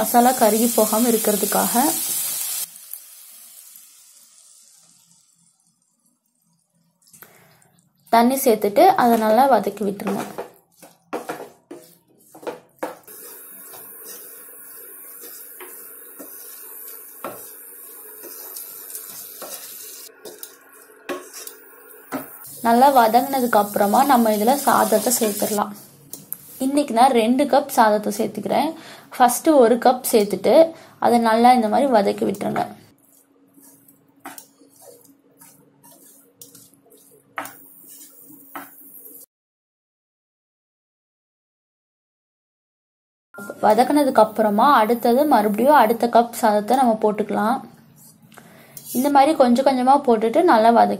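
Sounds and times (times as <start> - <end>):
vegetables sizzling in a pan: 0.0 - 6.5, 8.2 - 27.1, 31.7 - 39.3, 43.4 - 46.9, 48.7 - 49.2
spatula scraping and knocking pan: 9.0 - 26.2, 32.4 - 38.9.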